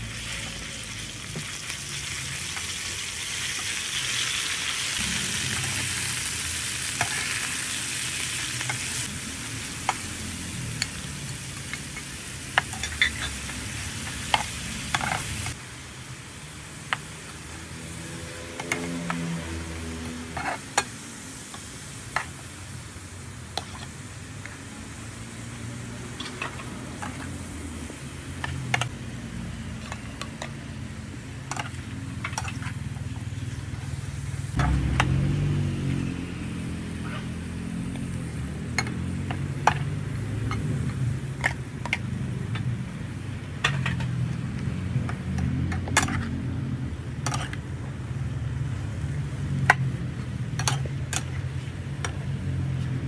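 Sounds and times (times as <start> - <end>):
food sizzling: 0.0 - 53.0
spatula scraping and tapping pan: 23.6 - 24.0.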